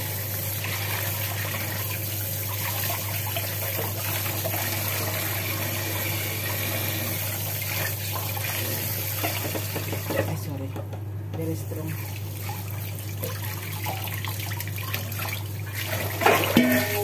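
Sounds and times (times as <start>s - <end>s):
tap water running into sink: 0.0s - 17.0s
hands rinsing fish: 11.8s - 17.0s.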